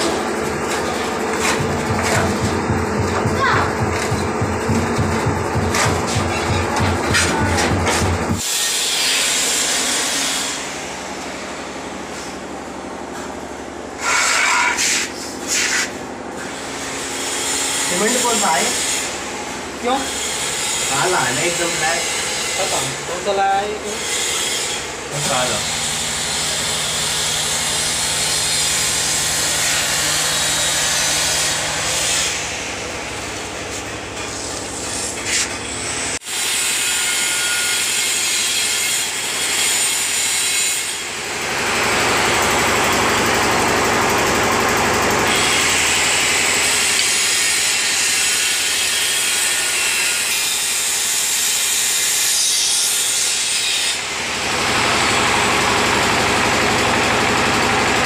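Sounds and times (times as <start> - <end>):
ceramic tile being ground: 33.8 - 35.6.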